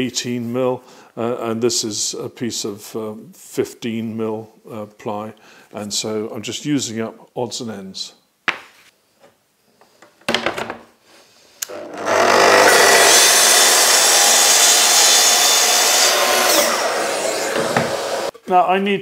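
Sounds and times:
track saw cutting plywood: 0:11.6 - 0:18.3.

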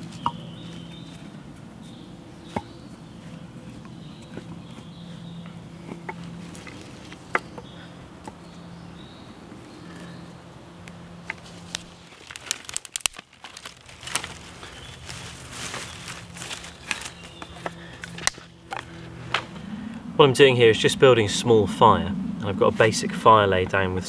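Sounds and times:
sticks knocking and snapping: 0:11.2 - 0:19.5
dry litter crinkling: 0:11.4 - 0:19.5.

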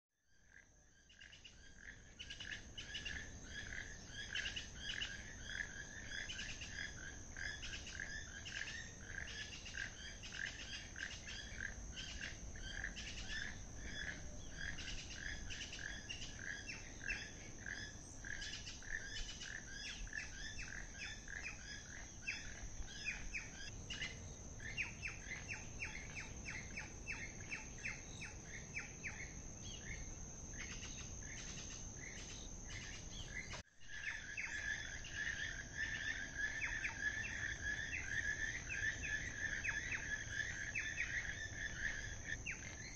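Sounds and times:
high insect drone: 0:00.3 - 0:42.9
toucans calling: 0:01.2 - 0:42.9.

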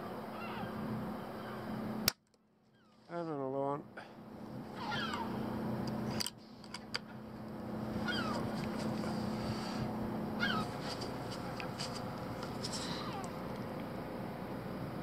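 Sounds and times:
gulls calling: 0:00.0 - 0:01.9, 0:04.0 - 0:13.8
steady low hum: 0:00.0 - 0:15.0.

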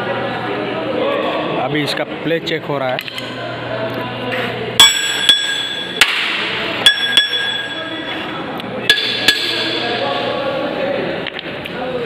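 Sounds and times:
hammer ringing on metal: 0:04.8 - 0:08.2, 0:08.9 - 0:10.2.

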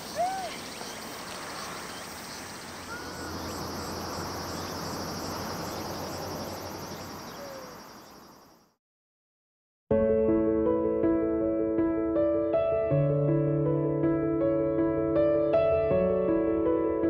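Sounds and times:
short bird calls: 0:00.0 - 0:08.7
insects chirring: 0:00.0 - 0:08.8.

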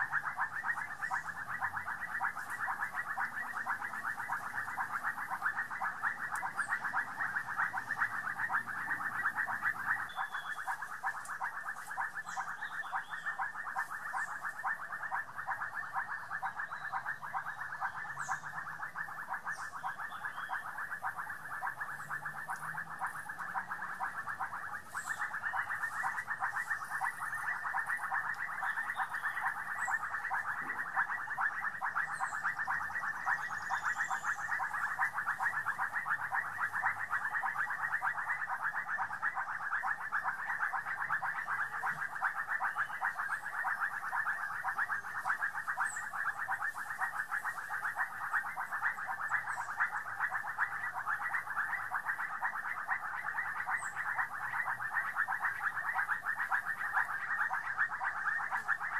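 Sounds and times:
frogs calling in chorus: 0:00.0 - 0:58.9.

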